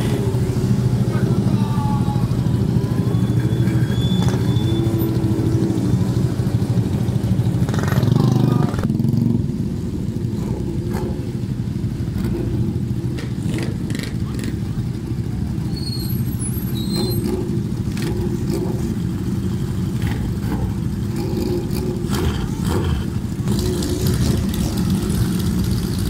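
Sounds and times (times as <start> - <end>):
motorcycle engines pulling away: 0.0 - 26.0.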